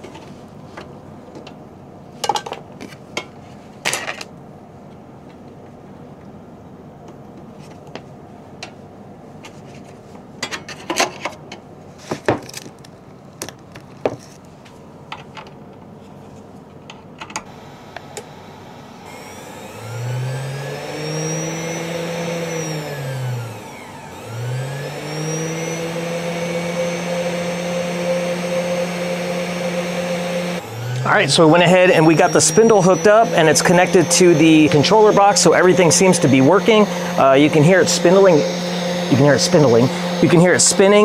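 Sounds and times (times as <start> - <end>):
spindle motor whine: 17.5 - 41.0.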